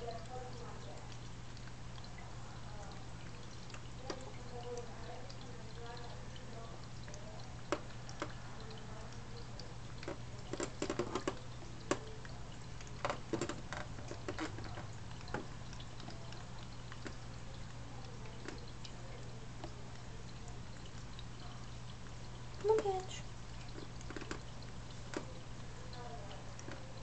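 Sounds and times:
small sharp clicks and taps: 10.0 - 17.6, 18.2 - 19.8, 23.6 - 26.9.

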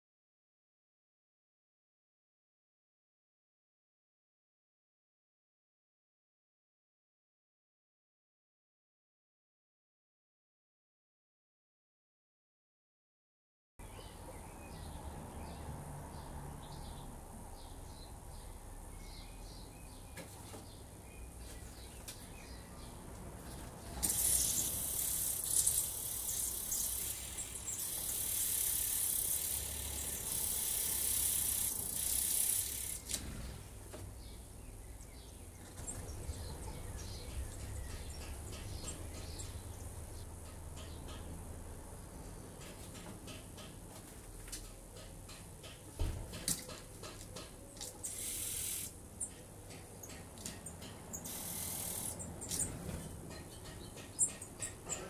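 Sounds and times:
nestlings begging with hissing calls: 24.0 - 33.1, 47.9 - 49.4, 51.1 - 52.7.

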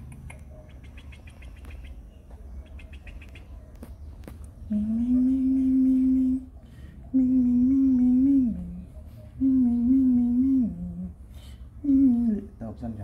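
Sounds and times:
person humming: 4.7 - 6.5, 7.1 - 8.8, 9.4 - 11.2, 11.8 - 12.5.

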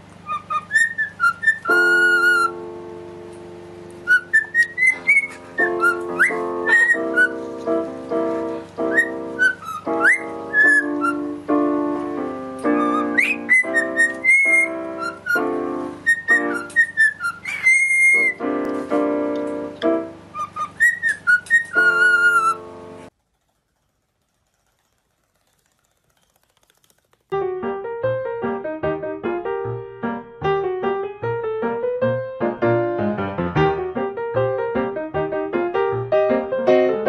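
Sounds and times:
piano playing: 0.0 - 23.1, 27.3 - 37.0
bird whistling: 0.2 - 2.6, 4.0 - 7.4, 8.8 - 11.4, 12.6 - 18.5, 20.3 - 22.6.

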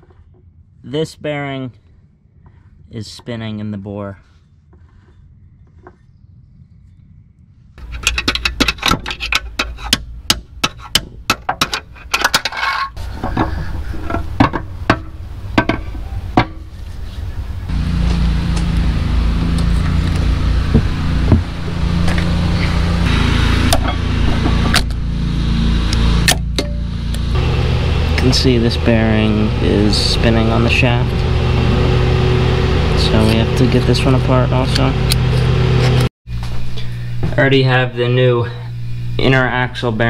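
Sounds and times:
low hum: 0.0 - 40.0.

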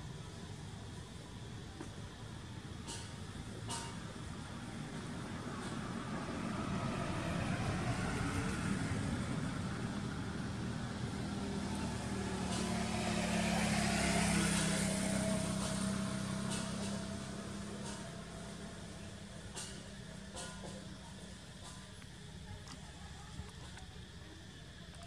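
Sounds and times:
vehicle passing by: 5.2 - 19.2.

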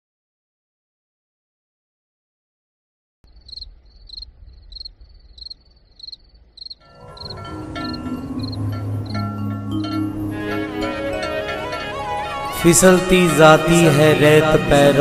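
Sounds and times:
cricket chirping: 3.3 - 9.2
music with held tones and chimes: 6.8 - 13.6.

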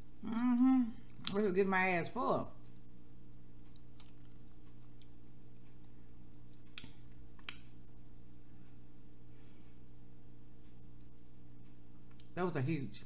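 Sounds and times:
steady low hum: 0.0 - 13.0
wet mouth clicks eating: 3.6 - 5.2, 6.5 - 7.8.

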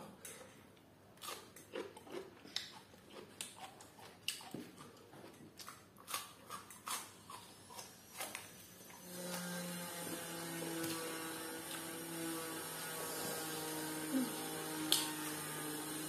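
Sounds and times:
wet mouth clicks and chewing: 1.2 - 8.4.

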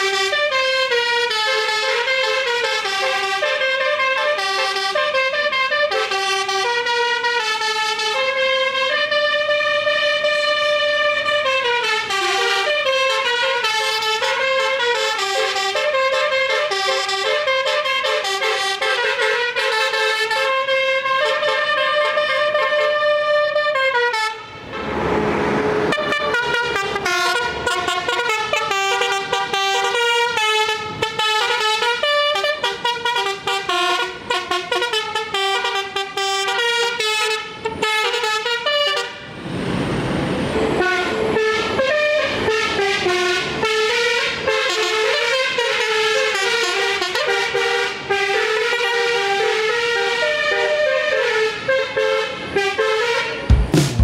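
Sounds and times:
multi-tone vehicle horn tune: 0.0 - 24.9, 25.7 - 39.3, 40.8 - 53.9
brief rushing noise: 53.5 - 54.0.

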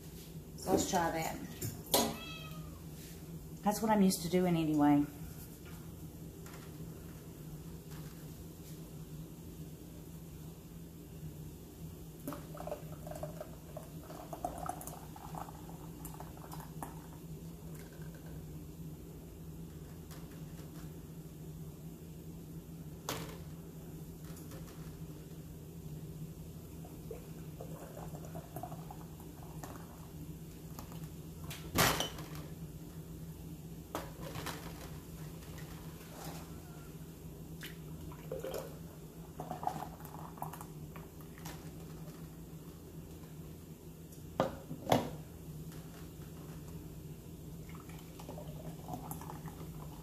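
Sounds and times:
thick syrup pouring: 12.3 - 17.0.

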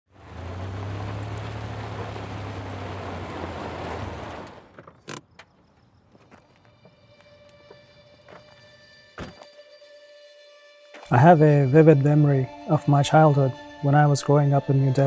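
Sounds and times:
car engine and tyre noise: 0.1 - 9.5.

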